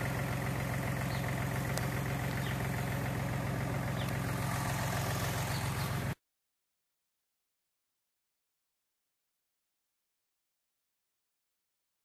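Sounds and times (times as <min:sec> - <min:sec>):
engine idling: 0:00.0 - 0:06.2.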